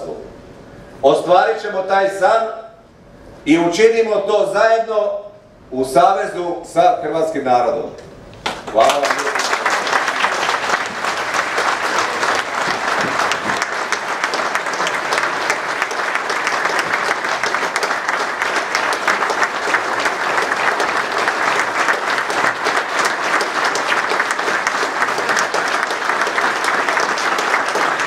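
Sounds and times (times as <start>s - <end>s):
crowd applauding: 8.4s - 28.0s.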